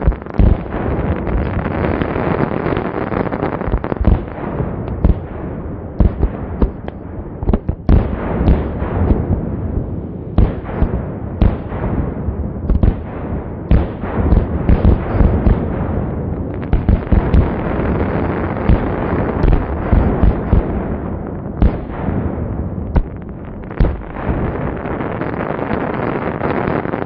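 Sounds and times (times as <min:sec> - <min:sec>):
sharp firework bangs: 0:00.0 - 0:27.0
fireworks shells bursting: 0:13.7 - 0:25.6.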